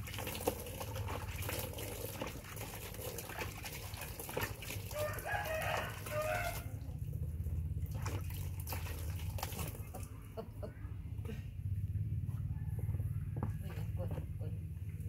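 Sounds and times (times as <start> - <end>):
water splashing into a basin: 0.0 - 10.3
rooster crowing: 4.9 - 6.8, 12.3 - 13.8
steady low rumble: 6.6 - 15.0.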